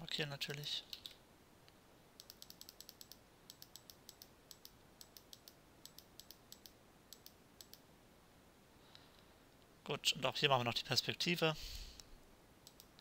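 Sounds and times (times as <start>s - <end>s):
computer keyboard typing: 2.2s - 7.8s.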